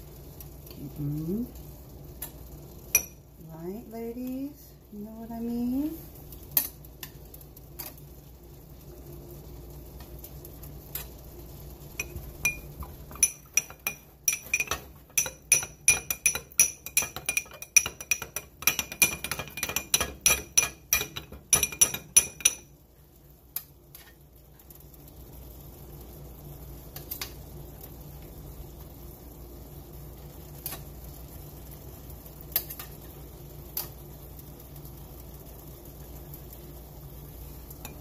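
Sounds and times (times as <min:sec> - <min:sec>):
metal tongs clicking on skillet: 0:02.2 - 0:03.2, 0:06.5 - 0:07.2, 0:07.8 - 0:08.0, 0:10.9 - 0:11.2, 0:12.0 - 0:22.7, 0:23.5 - 0:24.1, 0:30.6 - 0:30.9, 0:32.5 - 0:33.0, 0:33.7 - 0:34.0
metal spoon clinking in glass bowl: 0:12.0 - 0:22.7.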